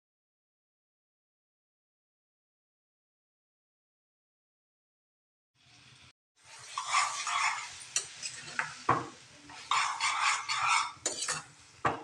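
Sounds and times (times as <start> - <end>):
metal ladle scraping a pan: 6.5 - 8.9, 9.5 - 11.7.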